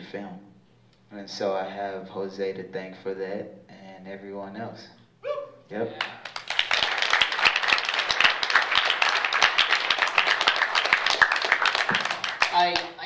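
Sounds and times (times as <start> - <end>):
audience applauding: 6.0 - 12.9.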